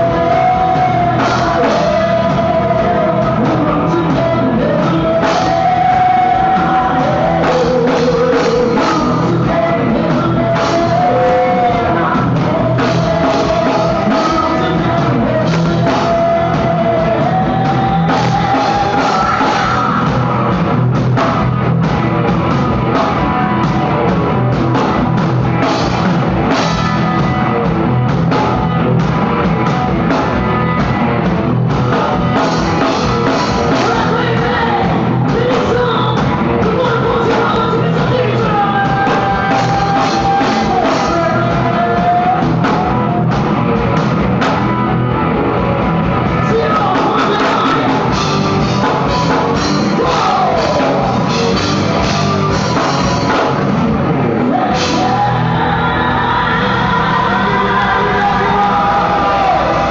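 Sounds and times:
woman singing into a microphone: 0:00.0 - 0:20.0, 0:54.5 - 0:59.6
drum kit beating: 0:00.0 - 0:59.9
live rock music: 0:00.0 - 0:59.9.

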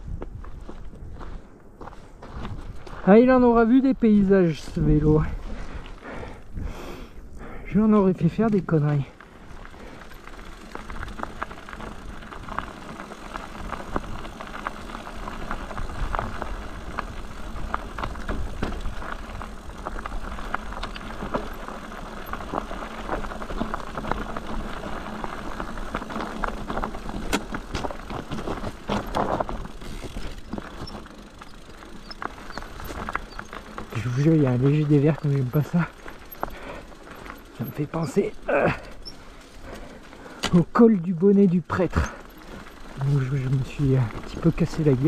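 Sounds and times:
bike rattling: 0:00.0 - 0:45.0
tyres crunching over stones: 0:07.9 - 0:45.0.

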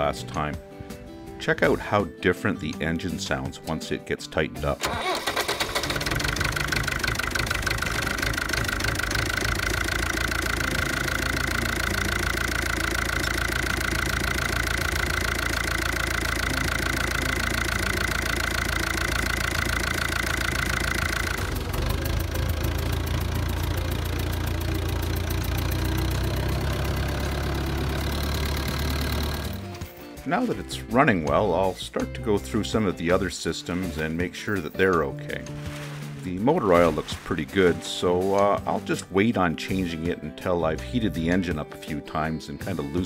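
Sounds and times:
diesel engine knocking: 0:05.6 - 0:29.6.

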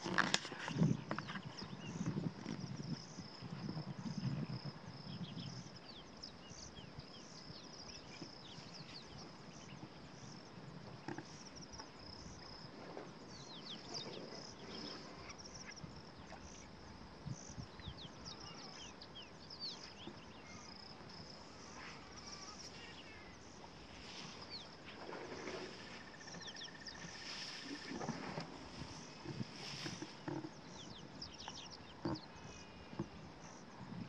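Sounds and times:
high insect buzz: 0:18.4 - 0:34.0.

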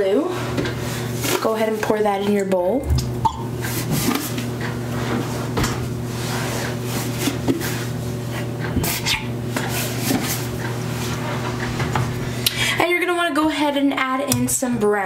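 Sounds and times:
steady low hum: 0:00.0 - 0:15.0
plastic jugs rubbing and crinkling: 0:03.6 - 0:08.0, 0:08.8 - 0:12.2.

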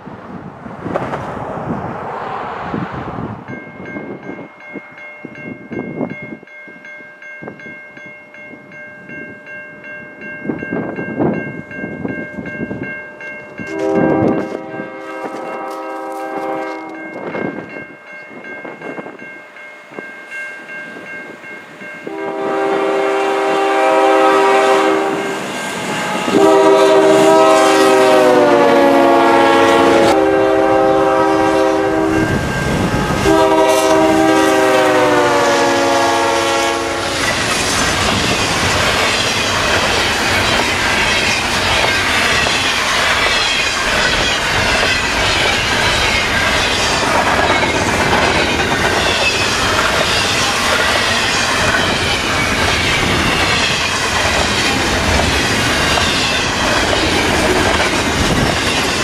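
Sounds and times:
freight cars rumbling past: 0:00.0 - 0:04.3
locomotive air horn: 0:13.7 - 0:17.1, 0:22.0 - 0:25.4, 0:26.2 - 0:32.2, 0:33.1 - 0:37.3
wheels clacking over rail joints: 0:37.2 - 0:59.0.

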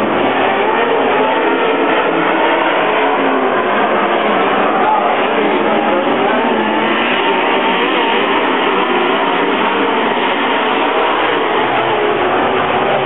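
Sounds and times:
race car engines droning: 0:00.0 - 0:13.0.

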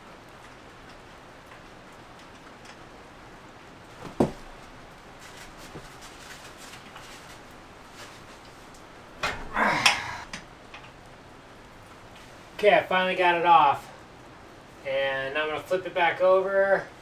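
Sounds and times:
person grunting with effort: 0:09.5 - 0:10.4.

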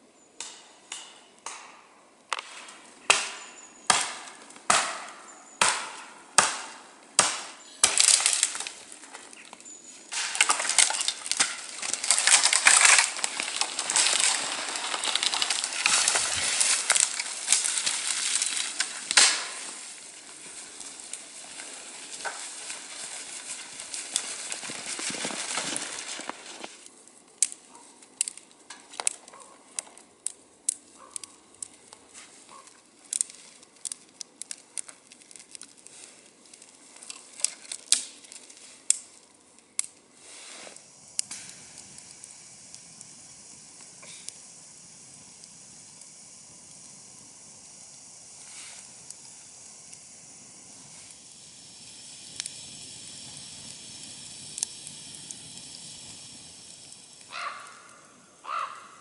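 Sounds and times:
twigs snapping and crackling: 0:00.4 - 0:40.0, 0:40.7 - 0:43.1, 0:48.8 - 0:58.8
branches rustling and crunching: 0:02.3 - 0:43.0, 0:56.7 - 0:58.9
footsteps through snow and brush: 0:10.1 - 0:26.8.

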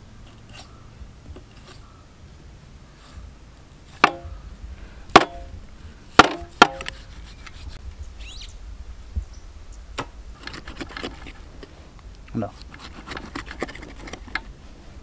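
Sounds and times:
knife chopping with metallic ring: 0:04.0 - 0:04.3, 0:05.2 - 0:05.5, 0:06.2 - 0:07.0.

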